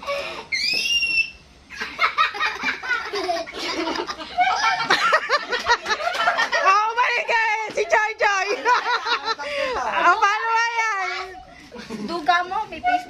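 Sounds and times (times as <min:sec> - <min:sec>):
young people laughing: 0:01.7 - 0:10.1, 0:11.5 - 0:12.3.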